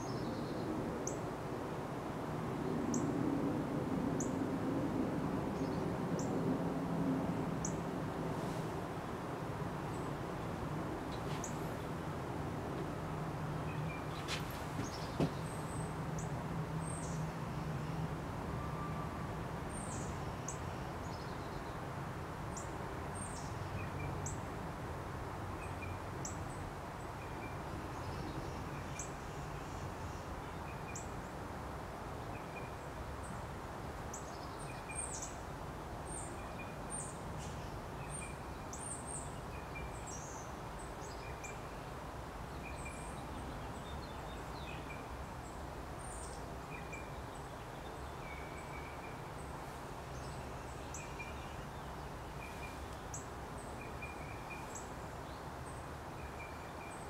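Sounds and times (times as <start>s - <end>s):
small birds chirping: 13.6s - 17.2s.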